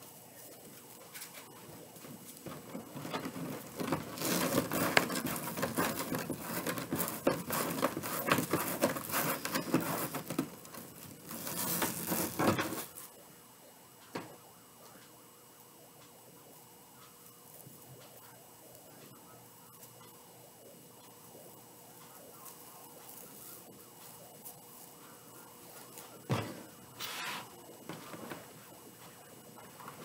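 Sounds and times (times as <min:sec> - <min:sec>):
crinkly rustling of mesh and plastic: 0:00.2 - 0:13.1.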